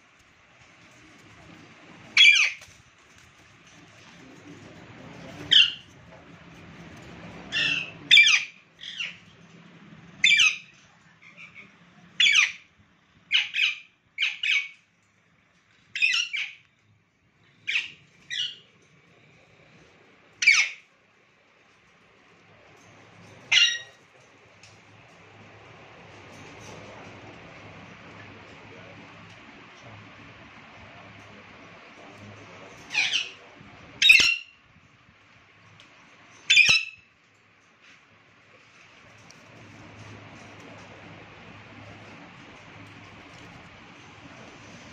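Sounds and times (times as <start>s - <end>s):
parakeets squawking: 2.2s - 2.8s, 4.5s - 5.9s, 7.5s - 9.4s, 10.2s - 12.7s, 13.3s - 14.8s, 16.0s - 16.6s, 17.6s - 18.6s, 20.4s - 20.9s, 23.5s - 24.0s, 32.8s - 33.4s, 34.0s - 34.6s, 36.4s - 37.0s.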